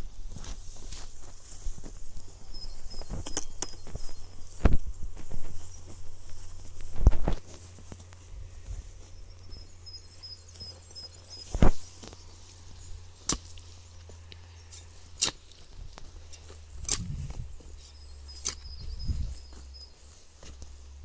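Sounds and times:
hoe chopping into soil: 13.2 - 13.6, 15.2 - 15.6, 16.3 - 17.4, 18.4 - 18.8.

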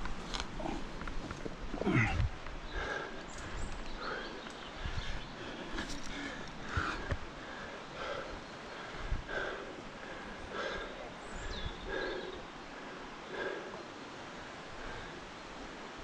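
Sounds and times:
person breathing hard: 1.8 - 13.9.

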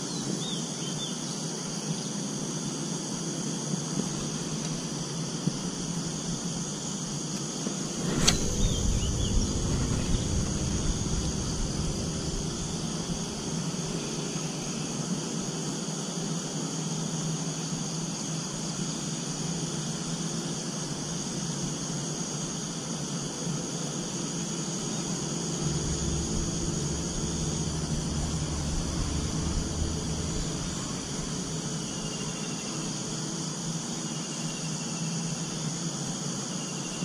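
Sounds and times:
insects droning: 0.0 - 37.0
low rustling: 7.8 - 13.8, 25.5 - 32.1
sharp click: 8.0 - 12.7.

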